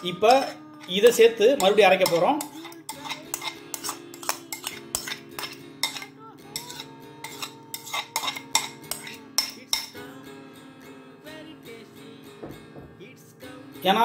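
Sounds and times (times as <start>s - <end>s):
spoon clinking on steel jar: 0.0s - 10.0s
soft background music: 0.0s - 14.0s.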